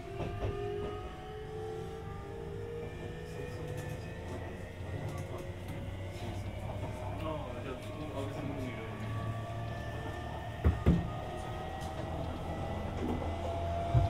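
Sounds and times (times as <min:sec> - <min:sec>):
electric train inverter whine: 0:00.0 - 0:14.0
wheels rumbling on rail: 0:00.0 - 0:14.0.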